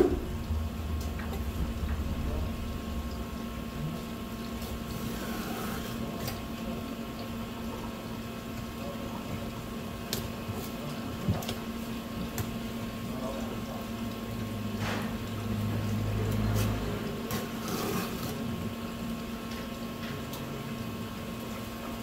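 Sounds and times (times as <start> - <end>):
steady machine hum: 0.0 - 22.0
fish being skinned: 15.0 - 18.7.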